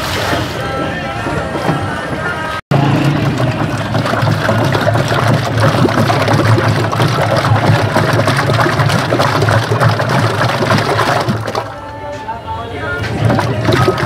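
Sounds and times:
mixture sloshing: 0:00.0 - 0:11.9, 0:12.9 - 0:14.0
paddle scraping metal pot: 0:13.0 - 0:14.0.

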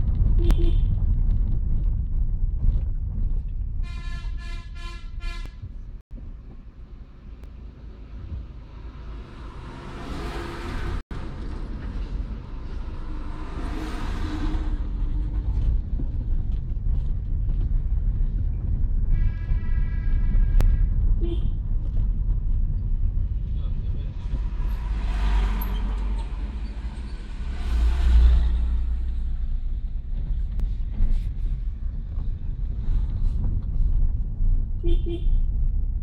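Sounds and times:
car engine and road rumble: 0:00.0 - 0:36.0
bus passing: 0:06.6 - 0:16.6, 0:23.3 - 0:33.4
vehicle passing: 0:08.0 - 0:15.7, 0:24.0 - 0:30.5
vehicle horn beeps: 0:34.8 - 0:35.4.

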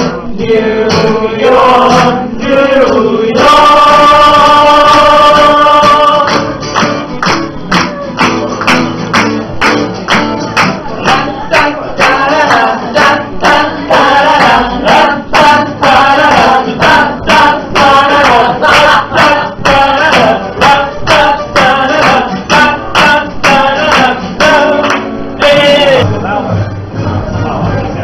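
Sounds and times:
person singing: 0:00.0 - 0:06.6, 0:10.9 - 0:26.3
strummed guitar: 0:00.0 - 0:28.0
sharp percussive beat: 0:02.9 - 0:26.8.

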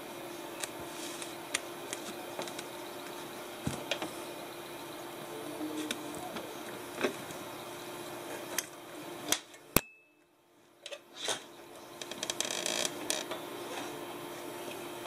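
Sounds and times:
kitten scratching and rustling: 0:00.6 - 0:02.7.

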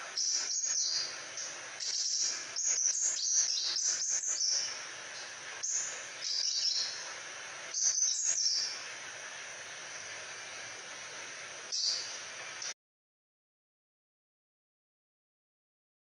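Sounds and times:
bird twittering: 0:00.2 - 0:07.0, 0:07.7 - 0:08.9, 0:11.7 - 0:12.2.

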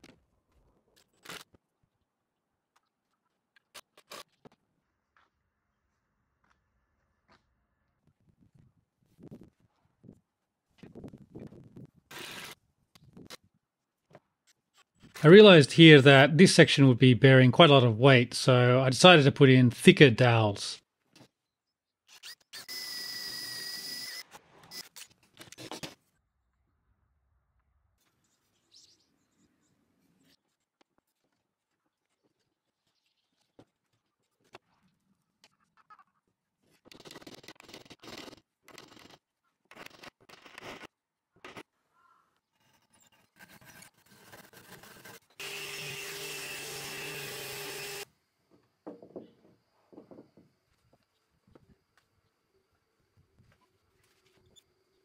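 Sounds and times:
cordless drill whining: 0:22.2 - 0:24.8, 0:45.4 - 0:48.1
orbit sander whining: 0:45.4 - 0:48.0.

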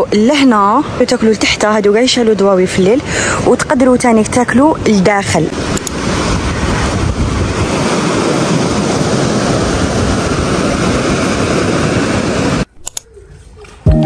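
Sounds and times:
surf breaking on rocks: 0:05.5 - 0:12.7.

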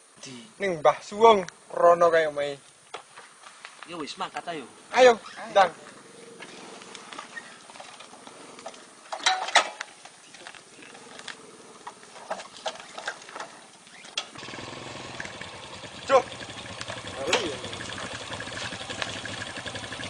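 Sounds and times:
motorcycle engines idling: 0:04.4 - 0:20.0
motorcycle pulling away: 0:05.5 - 0:08.9, 0:14.0 - 0:20.0.

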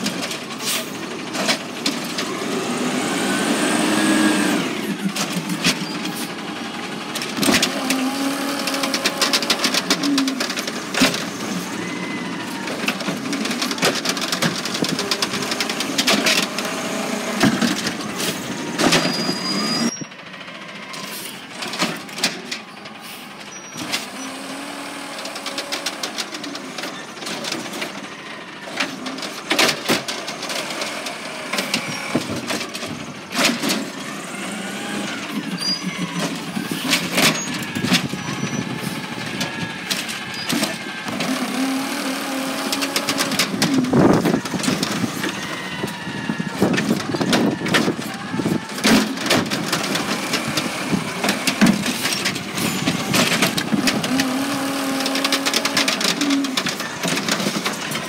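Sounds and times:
garbage truck running: 0:00.0 - 0:58.0
hydraulic arm whine: 0:15.3 - 0:20.1.

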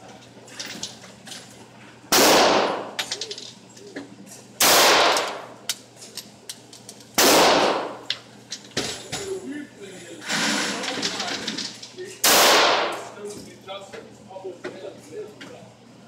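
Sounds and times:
pistol shots with echo: 0:02.1 - 0:03.0, 0:04.6 - 0:05.5, 0:07.2 - 0:08.0, 0:12.2 - 0:13.2.

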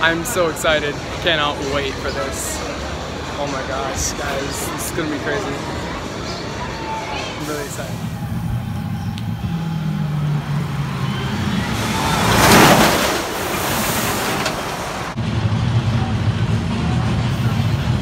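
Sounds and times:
roller coaster train rushing past: 0:05.5 - 0:18.0.

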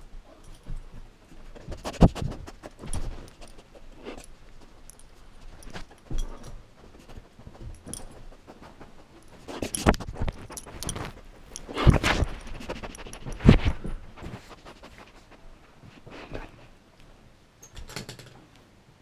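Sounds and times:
dog collar tags jingling: 0:02.8 - 0:06.6, 0:09.1 - 0:13.5.

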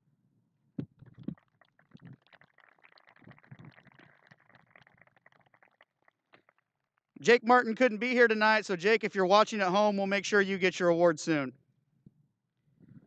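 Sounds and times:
faint crowd applause: 0:01.3 - 0:08.8.

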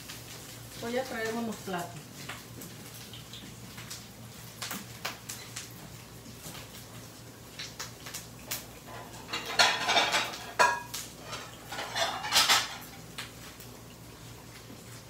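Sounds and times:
plates and cutlery clattering: 0:08.9 - 0:13.0.

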